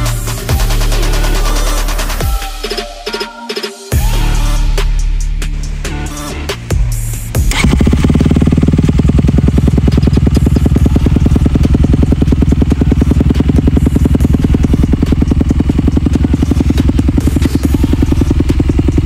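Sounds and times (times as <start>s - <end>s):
motorcycle engine idling: 0.0s - 2.5s, 3.9s - 19.0s.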